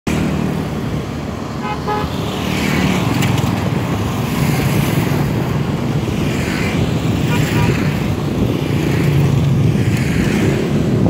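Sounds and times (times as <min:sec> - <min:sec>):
road traffic: 0:00.0 - 0:11.0
vehicle horn tooting: 0:01.6 - 0:02.2, 0:07.3 - 0:07.8.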